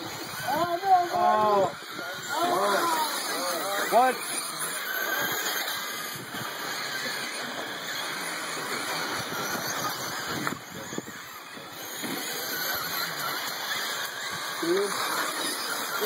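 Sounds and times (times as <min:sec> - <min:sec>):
radio-controlled cars whirring: 0:00.0 - 0:16.0.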